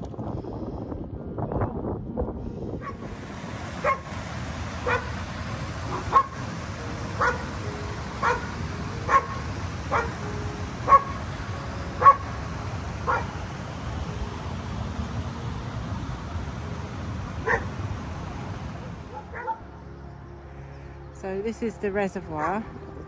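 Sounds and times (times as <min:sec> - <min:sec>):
dog barking: 0:02.8 - 0:03.0, 0:03.8 - 0:04.1, 0:04.8 - 0:05.1, 0:05.9 - 0:06.4, 0:07.2 - 0:07.5, 0:08.2 - 0:08.5, 0:09.1 - 0:10.2, 0:10.9 - 0:11.2, 0:12.0 - 0:12.3, 0:13.0 - 0:13.3, 0:17.4 - 0:17.7, 0:19.1 - 0:19.6, 0:22.4 - 0:22.6.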